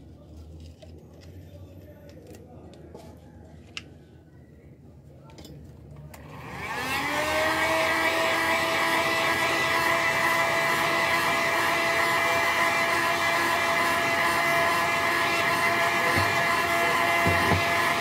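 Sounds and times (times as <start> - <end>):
heat gun fan whine and rush: 6.2 - 18.0.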